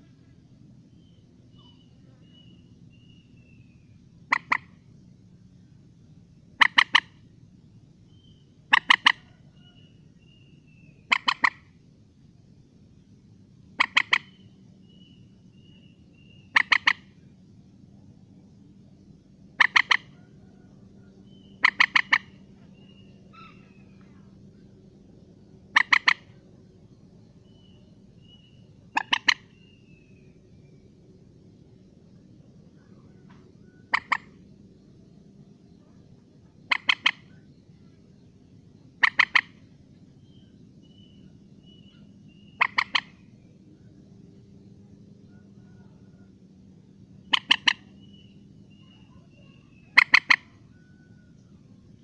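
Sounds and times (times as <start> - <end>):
moorhen calling: 0.9 - 5.0, 6.4 - 7.4, 8.1 - 11.8, 13.5 - 17.5, 19.4 - 51.6
faint thin bird whistles: 1.6 - 3.9.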